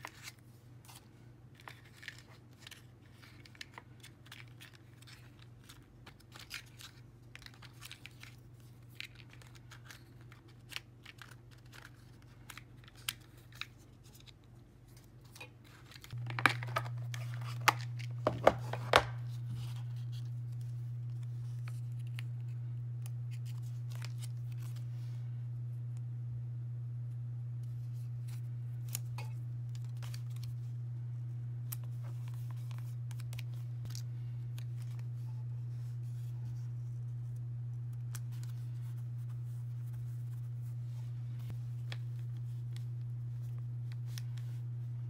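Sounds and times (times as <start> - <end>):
paper rustling in plastic organizer: 0.0 - 22.3
low steady hum: 0.0 - 45.0.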